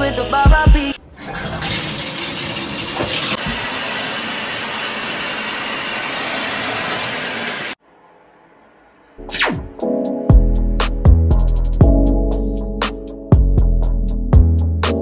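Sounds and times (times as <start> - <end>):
shower spraying into bathtub: 1.5 - 7.8.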